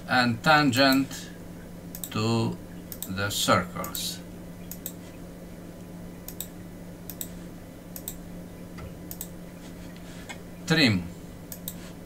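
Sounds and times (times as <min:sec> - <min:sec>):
steady low hum: 0:00.0 - 0:12.0
computer mouse clicking: 0:04.7 - 0:05.0, 0:06.3 - 0:08.2, 0:09.1 - 0:09.4, 0:11.5 - 0:11.8.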